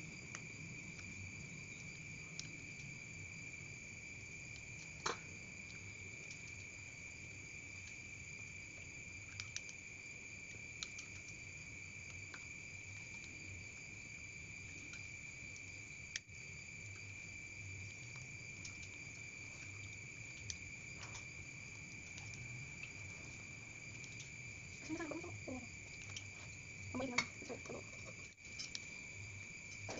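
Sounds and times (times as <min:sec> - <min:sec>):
high-pitched insect trill: 0:00.0 - 0:29.9.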